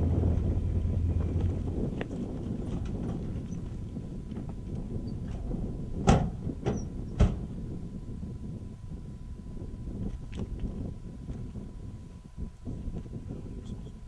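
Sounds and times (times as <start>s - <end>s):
wind noise: 0.0s - 14.0s.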